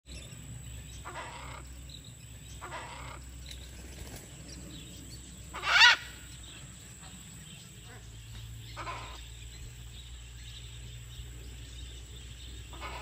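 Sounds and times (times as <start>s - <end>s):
macaws squawking: 1.0s - 1.7s, 2.5s - 3.3s, 5.4s - 6.4s, 7.8s - 9.3s, 12.7s - 13.0s.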